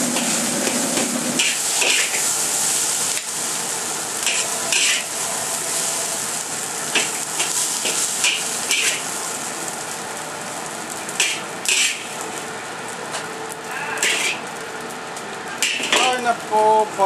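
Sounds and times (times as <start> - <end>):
utensil scraping a wok: 0.0 - 9.9, 11.1 - 12.2, 13.7 - 14.5
rice sizzling in a wok: 0.0 - 17.0.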